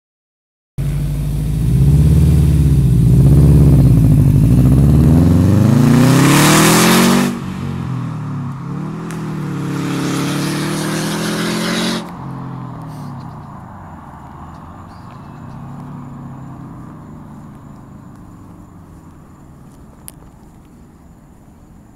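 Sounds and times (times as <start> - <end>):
loud car exhaust revving: 0.8 - 12.2.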